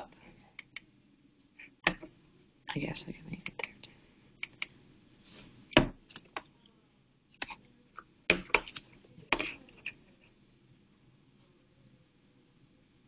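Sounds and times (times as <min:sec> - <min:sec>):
computer keyboard or mouse clicks: 0:04.4 - 0:04.7.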